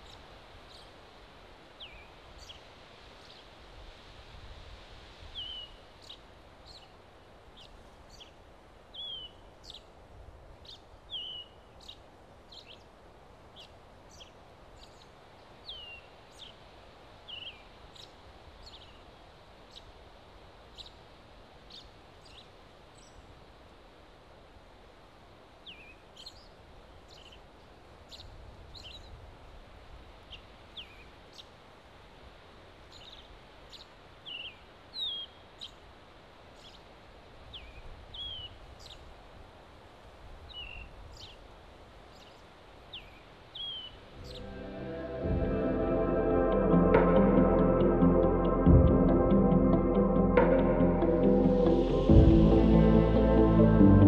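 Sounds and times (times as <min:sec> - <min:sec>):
wind in the trees: 0:00.0 - 0:47.0
small birds chirping: 0:10.6 - 0:20.0, 0:25.6 - 0:29.2, 0:32.9 - 0:35.9, 0:36.5 - 0:36.9, 0:37.5 - 0:39.1, 0:40.4 - 0:44.6.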